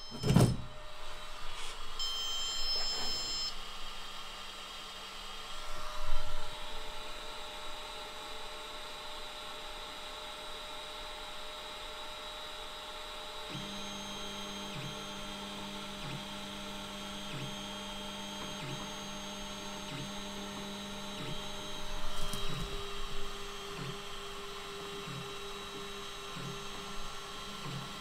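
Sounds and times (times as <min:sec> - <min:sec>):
stepper motors whining: 0:13.5 - 0:28.0.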